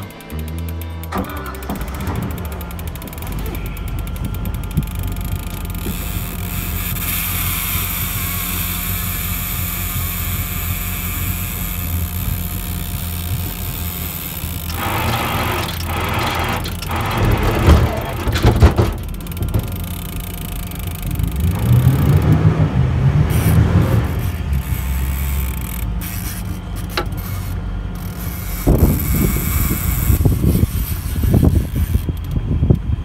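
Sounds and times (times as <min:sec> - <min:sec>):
boat motor humming: 0:00.0 - 0:33.0
loud thumps: 0:01.1 - 0:06.0, 0:14.8 - 0:20.0.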